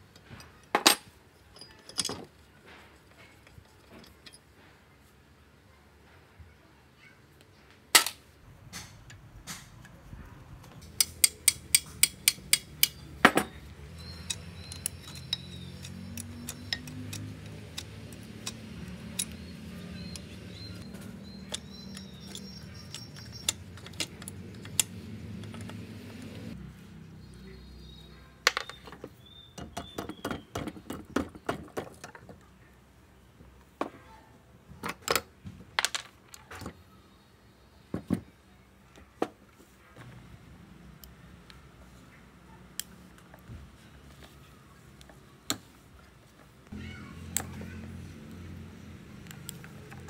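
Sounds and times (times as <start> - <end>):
metal parts clinking: 0.5 - 2.4, 10.9 - 25.8.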